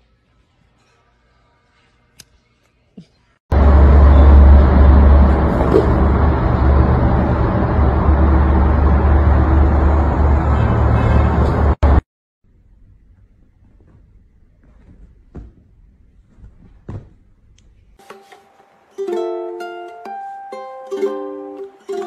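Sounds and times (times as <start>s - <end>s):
loud deep steady noise: 3.5s - 12.0s.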